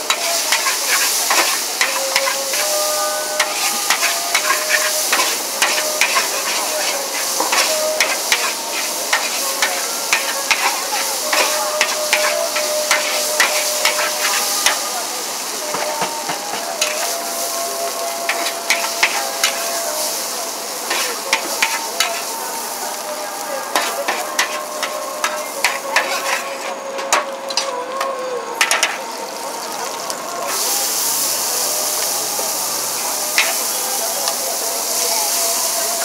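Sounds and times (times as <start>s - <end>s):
frying sizzle: 0.0s - 36.0s
metal spatula scraping a wok: 0.1s - 2.8s, 3.4s - 14.8s, 18.3s - 19.7s, 20.9s - 22.3s, 23.7s - 27.7s, 28.6s - 29.0s, 33.4s - 33.6s.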